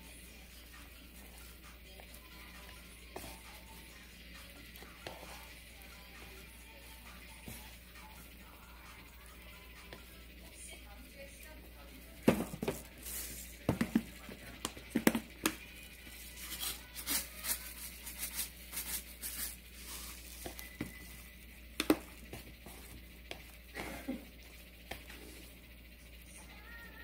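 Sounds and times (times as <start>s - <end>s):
seeds shaken from a jar: 16.2s - 20.4s.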